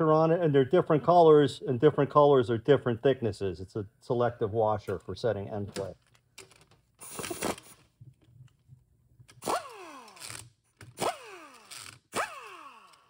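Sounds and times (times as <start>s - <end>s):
pneumatic tool bursts: 7.0s - 7.8s, 9.4s - 13.0s.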